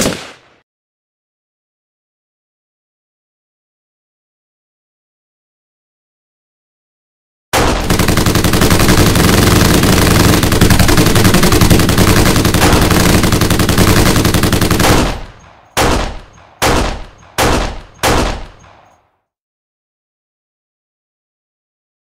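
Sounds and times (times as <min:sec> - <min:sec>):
single gunshots with echo: 0:00.0 - 0:00.6, 0:14.8 - 0:19.0
automatic machine-gun fire: 0:07.6 - 0:18.9.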